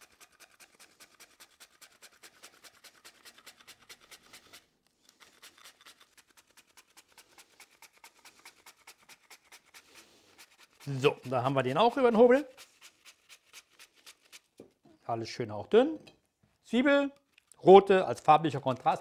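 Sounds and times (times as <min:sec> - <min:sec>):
mandoline slicing strokes: 0:00.0 - 0:14.6.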